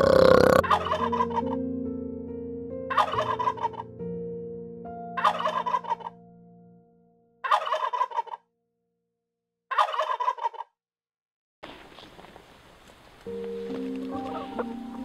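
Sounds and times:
turkey gobbling: 0:00.1 - 0:01.5, 0:02.9 - 0:03.8, 0:05.2 - 0:06.2, 0:07.4 - 0:08.4, 0:09.7 - 0:10.6, 0:14.0 - 0:15.0.

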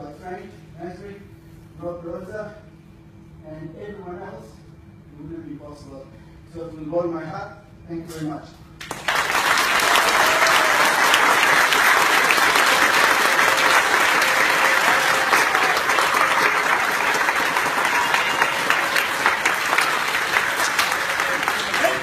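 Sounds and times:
audience applauding: 0:08.8 - 0:22.0.

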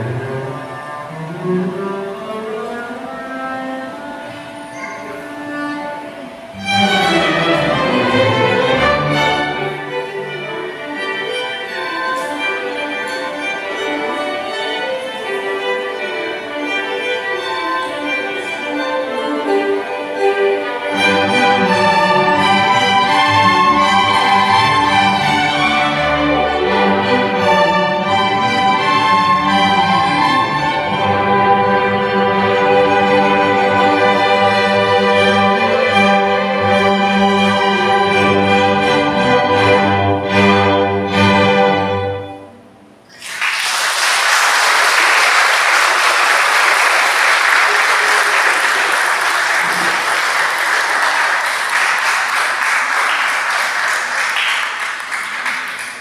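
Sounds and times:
double bass solo: 0:00.0 - 0:09.2
string orchestra playing: 0:00.0 - 0:43.0, 0:44.7 - 0:54.2
audience applause: 0:43.1 - 0:56.0.

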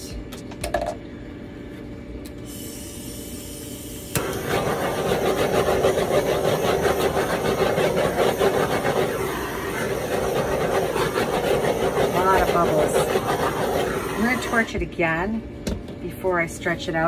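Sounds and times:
torch flame hissing: 0:02.4 - 0:14.8
torch ignition click: 0:04.1 - 0:05.5.

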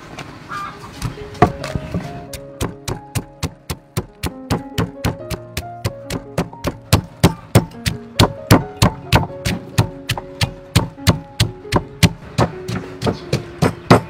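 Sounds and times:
background music: 0:01.1 - 0:14.0
wooden pestle pounding in mortar: 0:01.4 - 0:14.0.

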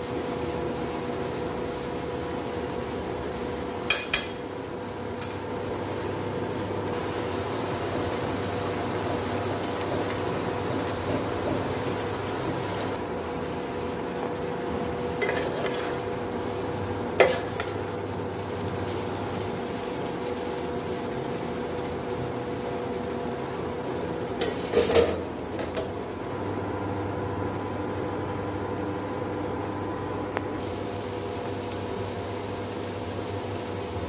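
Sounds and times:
induction cooktop hum: 0:00.0 - 0:34.0
spoon clinking on frying pan: 0:03.9 - 0:04.5.

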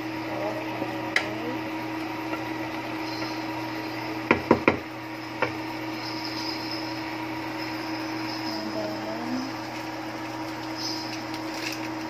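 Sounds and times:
steady low hum: 0:00.0 - 0:12.0
spatula knocking on metal pot: 0:04.3 - 0:04.8.

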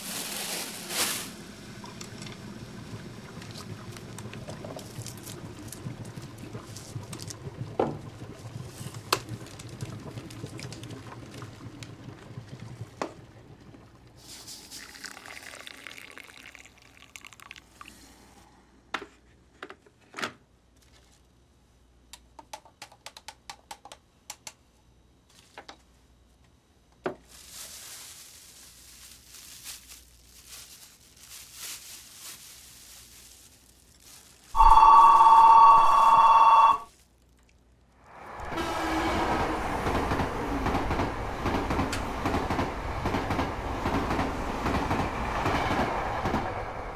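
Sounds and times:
packet and plastic bag rustling: 0:00.0 - 0:01.6, 0:27.1 - 0:34.6
water poured into a cup: 0:14.3 - 0:18.0.

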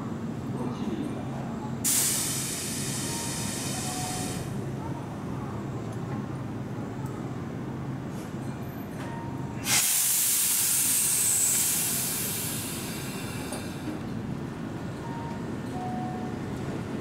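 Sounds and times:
train low rumble: 0:00.0 - 0:17.0
compressed air hissing: 0:01.9 - 0:04.3, 0:09.6 - 0:13.6.

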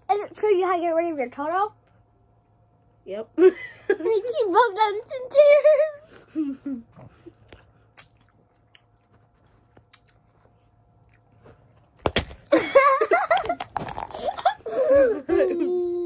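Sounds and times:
chewing and mouth clicks: 0:07.0 - 0:12.0.

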